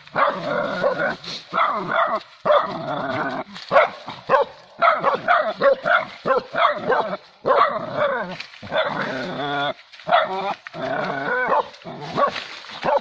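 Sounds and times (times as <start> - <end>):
dogs barking and yelping: 0.0 - 13.0.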